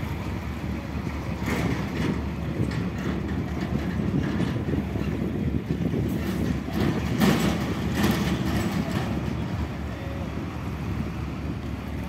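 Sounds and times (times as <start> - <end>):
diesel truck engine rumbling: 0.0 - 12.0.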